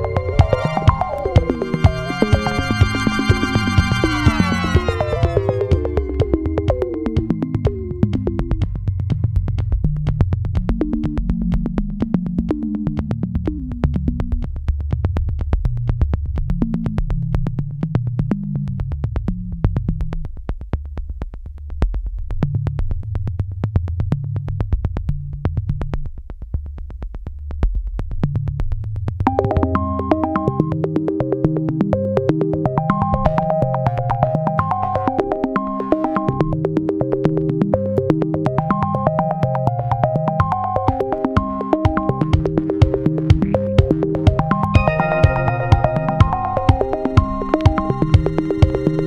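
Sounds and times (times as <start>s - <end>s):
keyboard melody: 0.0s - 8.1s, 29.3s - 31.2s, 32.8s - 49.0s
synth bass notes: 0.0s - 9.3s, 29.3s - 49.0s
quick electronic beat: 0.0s - 12.9s, 32.8s - 49.0s.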